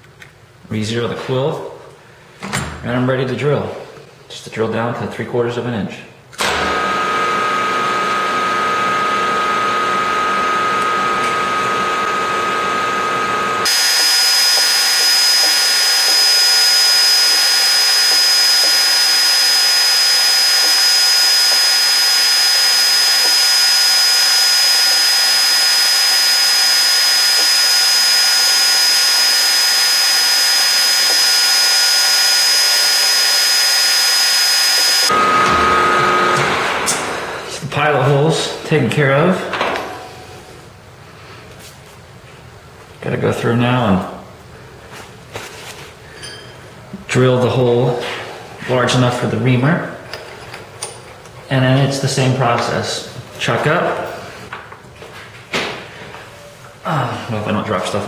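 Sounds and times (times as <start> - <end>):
milling machine spindle whine: 6.5 - 37.5
drill bit drilling into metal: 6.7 - 36.4.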